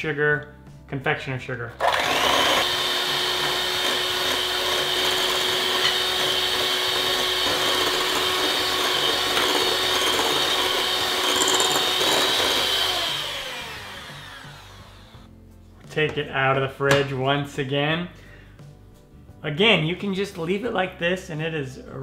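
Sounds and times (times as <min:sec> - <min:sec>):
electric hand mixer whipping cream: 0:01.8 - 0:15.3.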